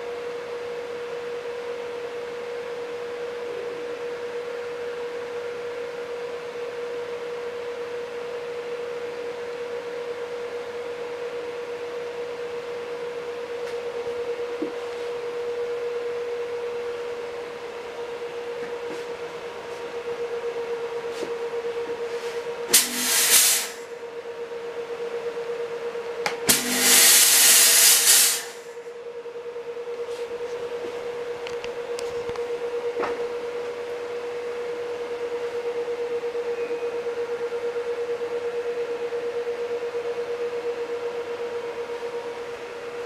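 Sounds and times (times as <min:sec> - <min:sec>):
steady hum with held tone: 0:00.0 - 0:43.0
fog machine hissing: 0:22.7 - 0:23.9, 0:26.5 - 0:28.7.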